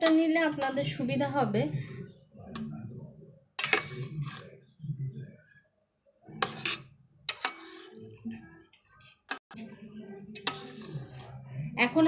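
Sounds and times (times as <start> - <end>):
spoon scraping steel pot: 3.6 - 4.6, 6.3 - 8.2, 8.8 - 11.6.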